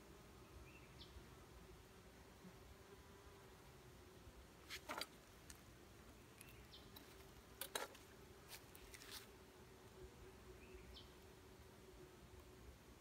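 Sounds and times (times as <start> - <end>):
honeybees humming: 0.0 - 13.0.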